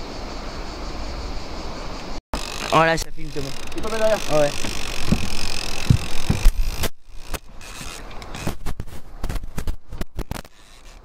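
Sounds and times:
sharp clicks and knocks: 2.4 - 11.0
low thumps: 4.6 - 6.9.

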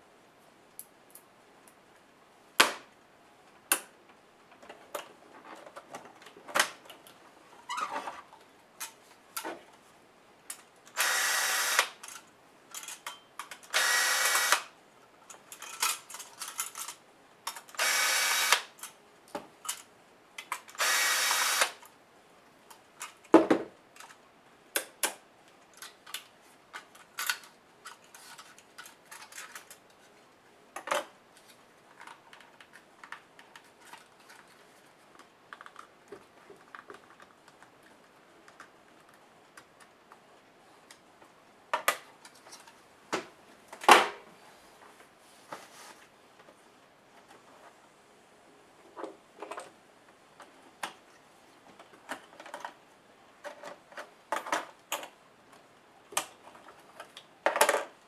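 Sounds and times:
cordless drill running: 11.0 - 12.0, 13.8 - 14.7, 17.8 - 18.7, 20.8 - 21.8.

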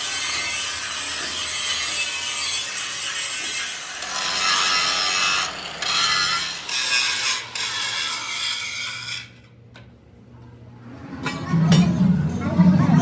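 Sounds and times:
metal being sawn or filed: 0.0 - 9.4.

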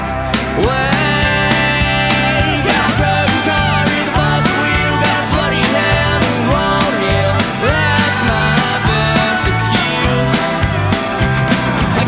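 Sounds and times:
rock song: 0.0 - 12.0.

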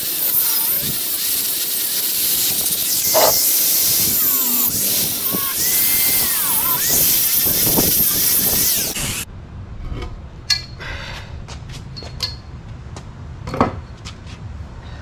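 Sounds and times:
angle grinder cutting bolt: 0.0 - 9.3.

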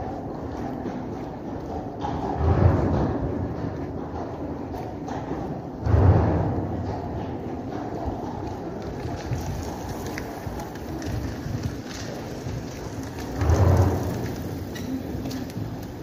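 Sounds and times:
low rumble echoing in tunnel: 0.0 - 16.0.

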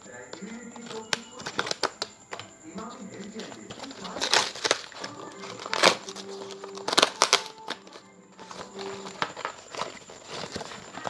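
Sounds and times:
packaging ripping and crinkling: 0.4 - 11.0.

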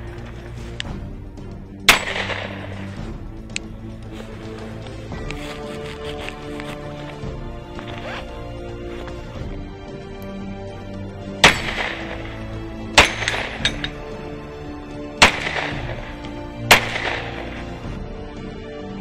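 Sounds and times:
background music: 0.0 - 19.0
pistol shots with echo: 1.9 - 2.9, 11.4 - 14.1, 15.2 - 17.7.

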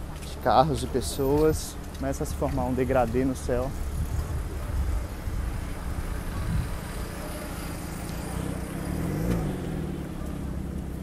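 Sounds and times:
car engines running: 0.0 - 11.0
vehicle passing: 3.7 - 11.0.

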